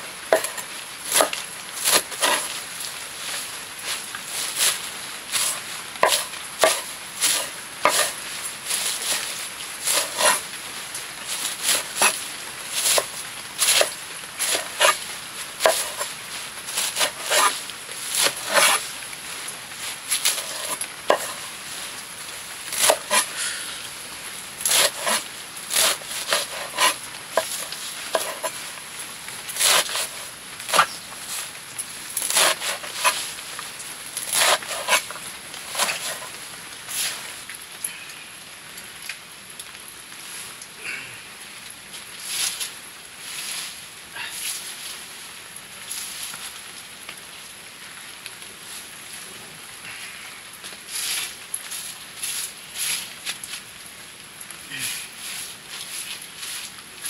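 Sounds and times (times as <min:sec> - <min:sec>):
hand tool knocking and scraping: 0:00.3 - 0:02.5, 0:05.4 - 0:08.2, 0:25.8 - 0:28.6.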